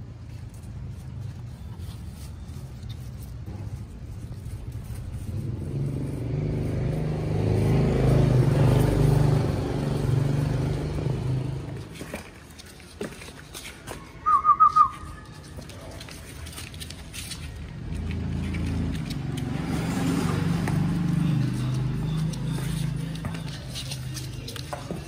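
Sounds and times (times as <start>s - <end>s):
vehicle engine passing by: 3.4s - 12.1s, 17.5s - 24.6s.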